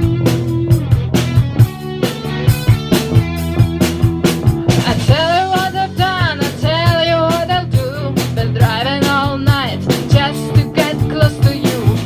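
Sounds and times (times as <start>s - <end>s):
bass guitar: 0.0s - 12.0s
electric guitar: 0.0s - 12.0s
rock drum beat: 0.0s - 12.0s
woman singing into a microphone: 4.8s - 12.0s.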